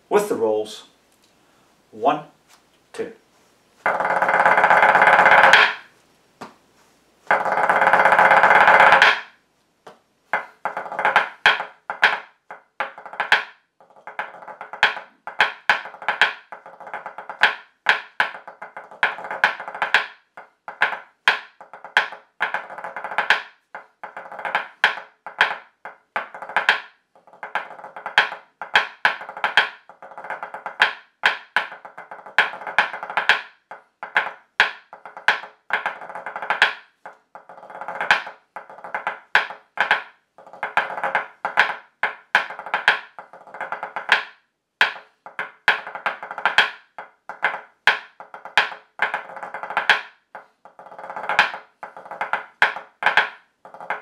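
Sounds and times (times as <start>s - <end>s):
drumsticks on a practice pad: 3.8s - 6.6s, 7.3s - 54.0s.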